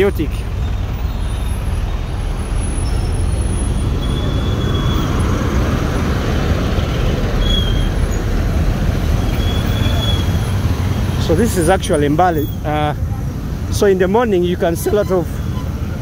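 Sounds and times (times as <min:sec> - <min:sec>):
truck passing close by: 0:00.0 - 0:12.6
road traffic: 0:00.0 - 0:16.0
faint high squeals: 0:00.6 - 0:05.3, 0:07.0 - 0:08.3, 0:09.2 - 0:10.6.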